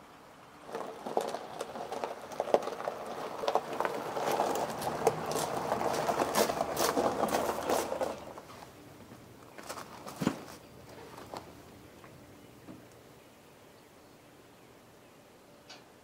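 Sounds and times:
tyres crunching on gravel: 0:00.4 - 0:11.8
footsteps on gravel: 0:00.6 - 0:11.6.

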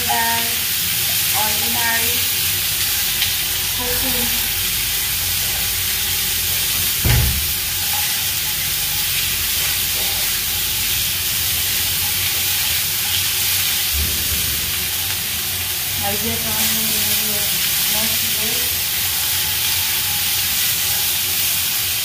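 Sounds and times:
vegetables sizzling in oil: 0:00.0 - 0:22.0
dull knock: 0:07.0 - 0:07.5
spatula stirring: 0:07.6 - 0:13.9, 0:18.6 - 0:22.0.

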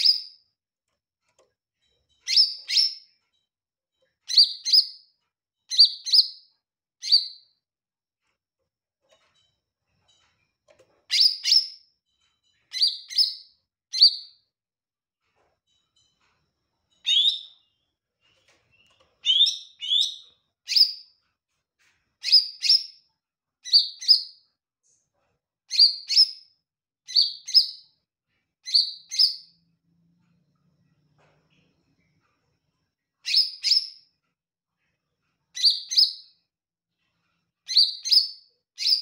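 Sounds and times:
bird chirping: 0:00.0 - 0:00.5, 0:02.1 - 0:03.2, 0:04.2 - 0:05.1, 0:05.7 - 0:07.6, 0:11.1 - 0:14.4, 0:16.9 - 0:21.2, 0:22.2 - 0:23.0, 0:23.6 - 0:24.5, 0:25.7 - 0:26.5, 0:27.1 - 0:28.0, 0:28.6 - 0:29.6, 0:33.2 - 0:34.1, 0:35.5 - 0:36.4, 0:37.6 - 0:39.0.

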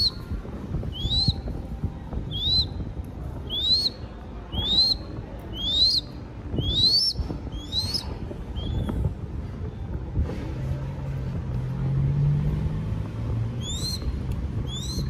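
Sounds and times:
bird chick whistled begging call: 0:00.9 - 0:01.5, 0:02.3 - 0:02.8, 0:03.5 - 0:08.9, 0:13.6 - 0:14.1, 0:14.7 - 0:15.0.

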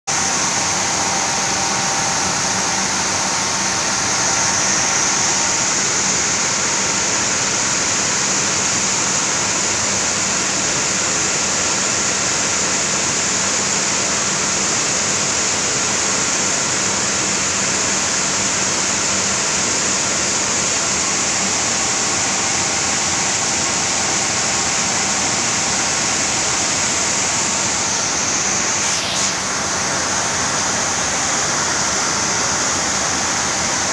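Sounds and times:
low machinery hum: 0:00.1 - 0:07.6
rice streaming down a chute: 0:00.1 - 0:33.9.

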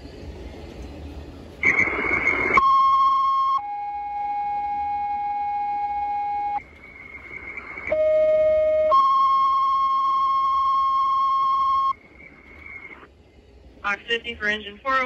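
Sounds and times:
faint radio hiss: 0:00.0 - 0:15.0
two-tone radio alert: 0:07.6 - 0:12.0.

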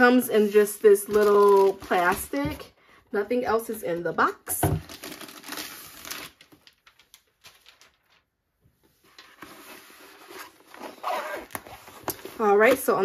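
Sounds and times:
plastic sleeve crinkling: 0:00.4 - 0:02.4, 0:04.8 - 0:08.3.

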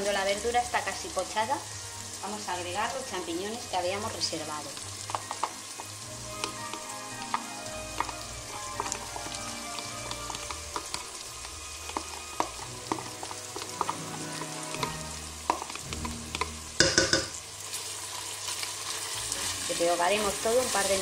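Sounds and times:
vegetables sizzling in oil: 0:00.0 - 0:21.0
oil pops and crackles: 0:04.7 - 0:17.4.

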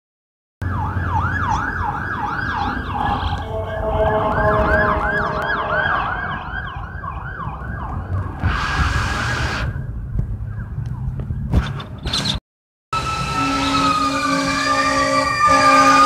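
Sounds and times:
electronic siren yelping: 0:00.6 - 0:11.1, 0:13.0 - 0:16.0
vehicle horn blast: 0:03.3 - 0:06.1, 0:13.3 - 0:16.0.

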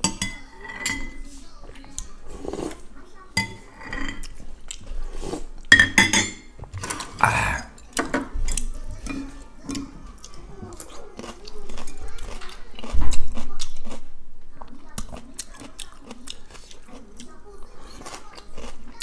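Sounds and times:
spoon clinking on ceramic bowl: 0:00.0 - 0:01.2, 0:05.7 - 0:06.5
slurping broth: 0:02.3 - 0:02.8, 0:03.8 - 0:05.6.

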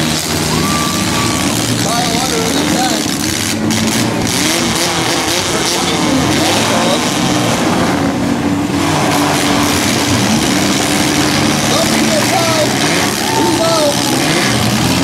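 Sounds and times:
truck engines running hard: 0:00.0 - 0:15.0
wheels spinning in dirt: 0:08.8 - 0:15.0.

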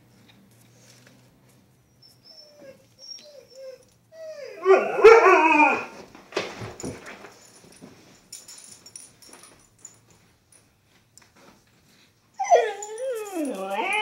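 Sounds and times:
dog whining: 0:01.9 - 0:06.0, 0:12.4 - 0:14.0
dog howling: 0:04.2 - 0:06.0, 0:12.4 - 0:14.0.

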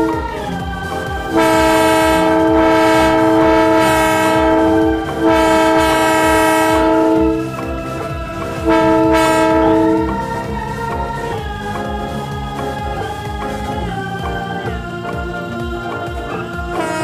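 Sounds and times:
multi-tone train horn blasts: 0:01.3 - 0:07.6, 0:08.6 - 0:10.2, 0:16.8 - 0:17.0.

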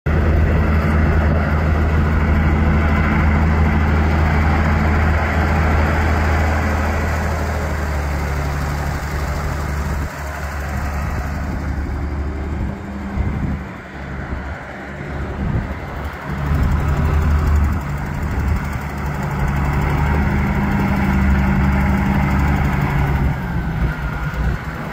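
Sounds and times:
tractor diesel engine passing: 0:00.1 - 0:24.9.

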